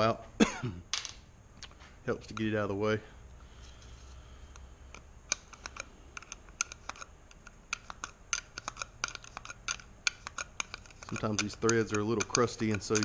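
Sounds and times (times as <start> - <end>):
plastic and metal parts clicking: 4.6 - 13.0.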